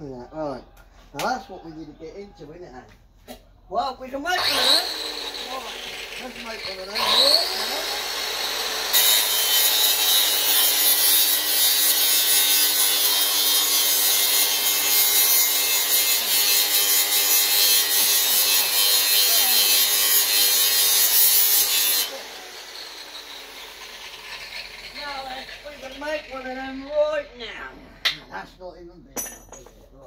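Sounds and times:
power tool cutting metal: 0:04.3 - 0:27.2.

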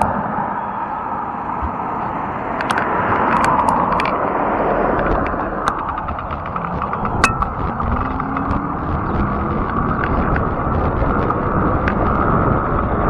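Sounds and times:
tyre noise on asphalt: 0:00.0 - 0:13.0
wind on camera: 0:00.0 - 0:13.0
sharp clicks: 0:04.8 - 0:12.4
small ticks: 0:04.9 - 0:12.5.

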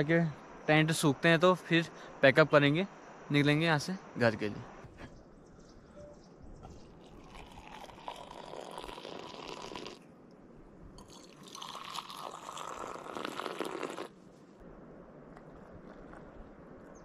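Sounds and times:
liquid pouring from kettle: 0:07.0 - 0:10.0, 0:11.0 - 0:14.1.

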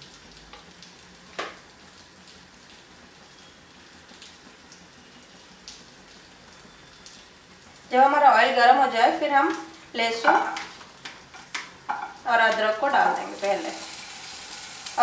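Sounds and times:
oil hissing in a frying pan: 0:09.4 - 0:15.0.

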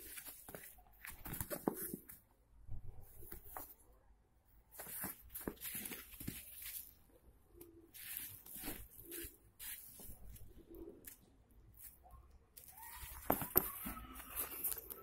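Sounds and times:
nylon backpack rustling: 0:12.7 - 0:15.0.

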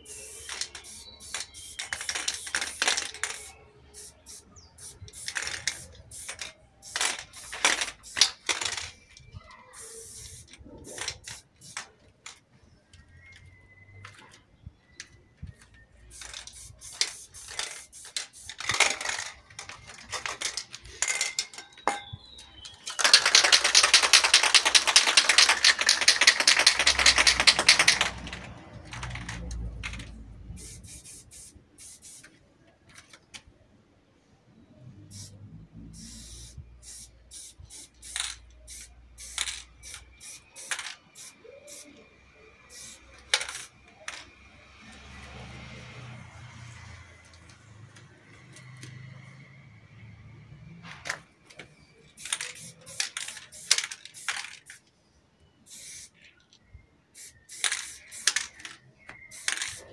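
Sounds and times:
spray can bursts: 0:00.0 - 0:09.2, 0:09.8 - 0:12.0, 0:16.1 - 0:21.6, 0:22.6 - 0:32.3, 0:35.0 - 0:42.0, 0:42.6 - 0:44.3, 0:52.1 - 0:54.8, 0:55.7 - 0:56.3, 0:57.2 - 0:59.9
ball rattling in shaken can: 0:00.0 - 0:12.4, 0:16.1 - 0:21.6, 0:22.6 - 0:32.3, 0:36.0 - 0:42.0, 0:42.7 - 0:44.3, 0:52.1 - 0:54.8, 0:57.2 - 0:59.9.

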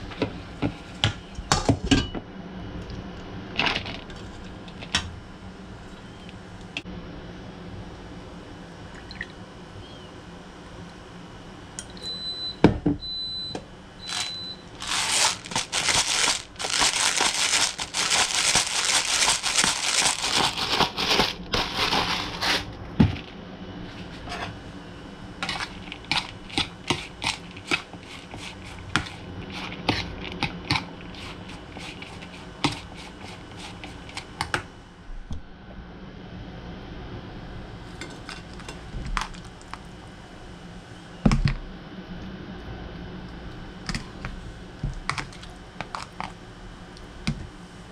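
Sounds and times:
pepper mill grinding: 0:14.1 - 0:22.4
fork scraping plastic bowl: 0:25.4 - 0:34.3.

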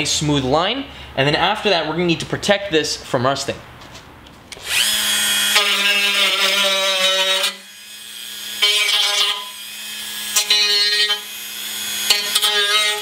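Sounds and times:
rotary tool grinding metal: 0:04.6 - 0:13.0.

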